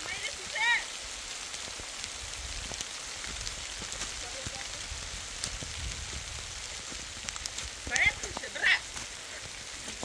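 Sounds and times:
raindrop taps: 0.0 - 10.0
steady rain falling: 0.0 - 10.0.

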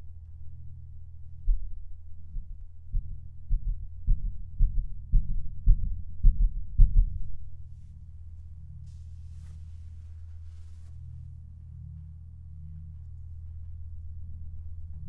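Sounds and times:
heartbeat thuds: 1.4 - 7.8
low drone: 7.6 - 15.0.

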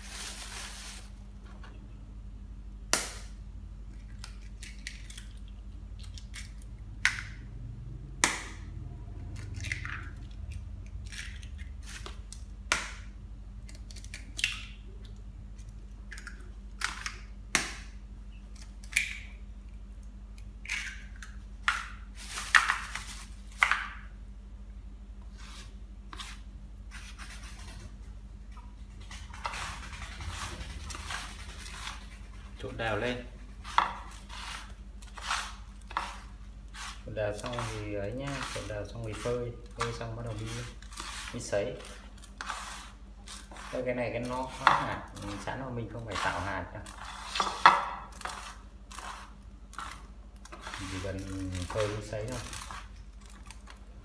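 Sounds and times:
eggshells tapping and cracking: 3.9 - 7.4, 13.6 - 17.9.

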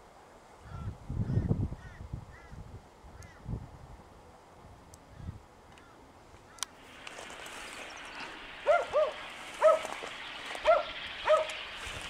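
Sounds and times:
steady hiss: 2.7 - 12.0
animal bark-like calls: 8.6 - 10.0, 10.6 - 11.6.

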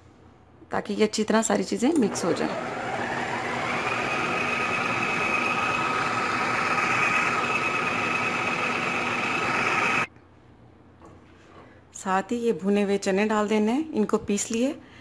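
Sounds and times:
food processor motor whining: 2.0 - 10.1.

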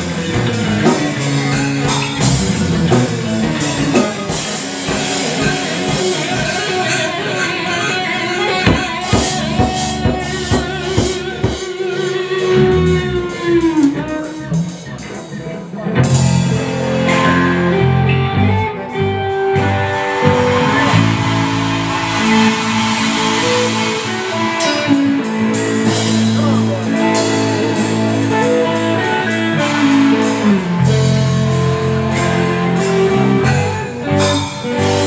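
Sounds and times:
electric guitar: 0.0 - 35.0
live rock band playing: 0.0 - 35.0
cymbal crash: 19.8 - 26.8.

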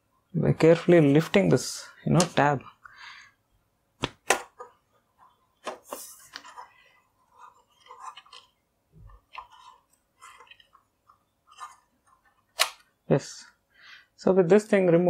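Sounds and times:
parts tapping and rustling: 4.0 - 12.9
light scraping: 5.2 - 8.5, 9.1 - 10.9, 11.5 - 12.4.

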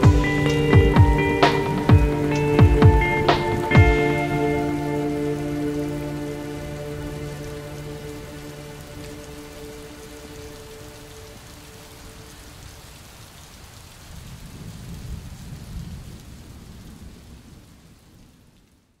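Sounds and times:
thunder rumble: 0.0 - 10.5, 14.2 - 18.6
held musical chord: 0.0 - 12.1
steady rain: 0.0 - 19.0.

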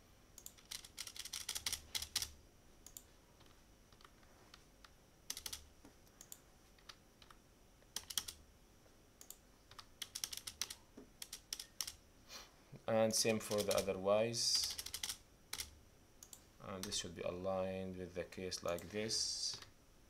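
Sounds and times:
computer keyboard typing: 0.4 - 4.1, 5.3 - 8.4, 9.2 - 12.0, 13.3 - 13.9, 14.5 - 17.0.

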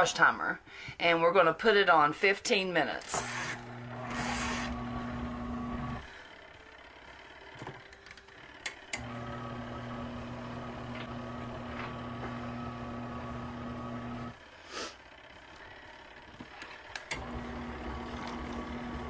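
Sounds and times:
washing machine motor hum: 3.2 - 14.4, 15.2 - 19.0.

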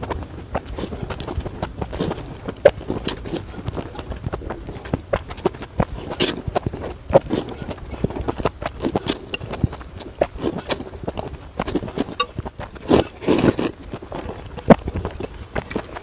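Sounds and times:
wet chewing: 0.0 - 16.0
slurping noodles: 0.7 - 4.1, 5.8 - 14.4.

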